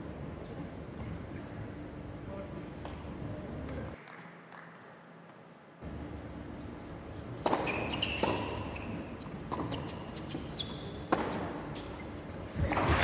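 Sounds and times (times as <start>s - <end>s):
shoes squeaking on court: 7.4s - 12.3s.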